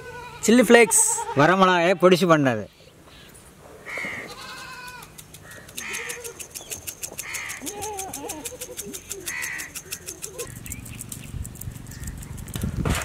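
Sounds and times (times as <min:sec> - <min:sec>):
wavering bleat-like calls: 0:00.0 - 0:02.2, 0:03.9 - 0:05.2, 0:05.8 - 0:06.4, 0:07.3 - 0:08.7
harsh animal calls: 0:03.1 - 0:10.8
fast high ticking: 0:05.1 - 0:12.6.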